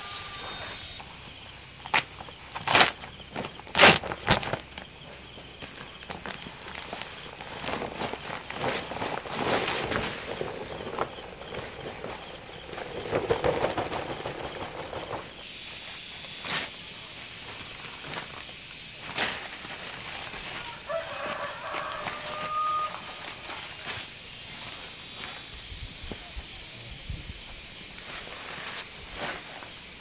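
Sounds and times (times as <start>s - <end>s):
hoe scraping on tarp: 0.0s - 1.1s, 1.8s - 4.8s, 5.4s - 25.5s, 28.0s - 29.8s
steady high whine: 0.0s - 2.0s.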